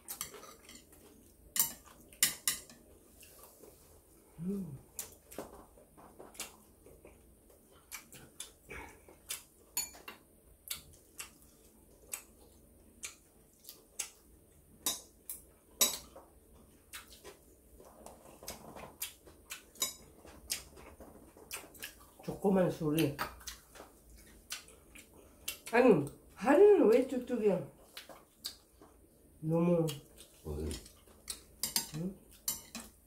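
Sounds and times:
utensils clinking on ceramic dishes: 0:31.6 - 0:33.0.

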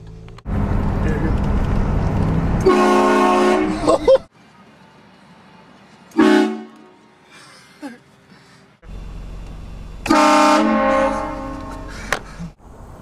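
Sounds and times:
train horn blasts: 0:02.6 - 0:03.8, 0:06.1 - 0:07.1, 0:10.0 - 0:12.0.

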